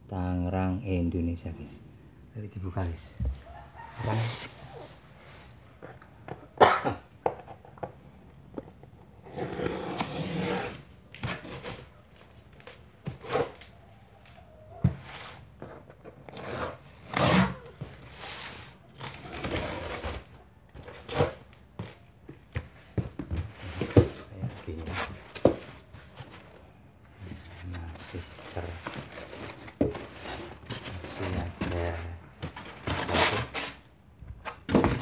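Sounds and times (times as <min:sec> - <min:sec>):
cardboard flaps scraping: 0:22.6 - 0:33.8.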